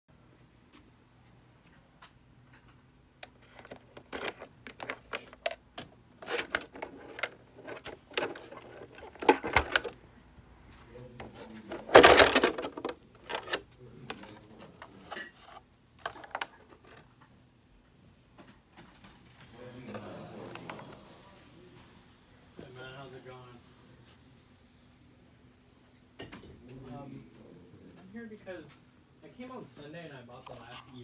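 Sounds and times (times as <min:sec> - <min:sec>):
plastic clicks and knocks: 0:02.0 - 0:10.0
plastic rustling: 0:03.2 - 0:10.0, 0:11.4 - 0:17.1.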